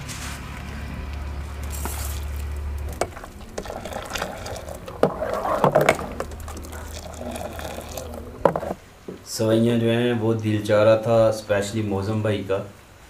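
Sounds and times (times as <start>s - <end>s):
tea pouring and splashing: 1.2s - 8.9s.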